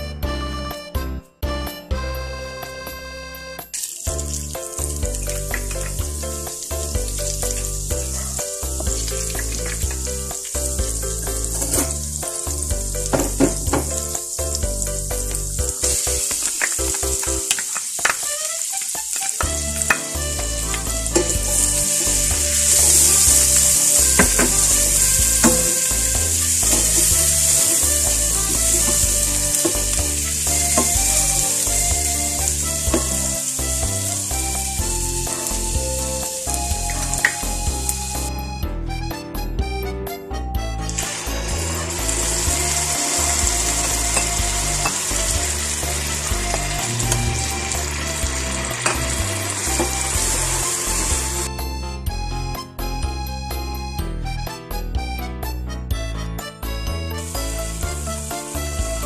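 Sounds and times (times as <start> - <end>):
butter sizzling in a pan: 3.7 - 38.1, 41.0 - 51.5, 57.3 - 59.0.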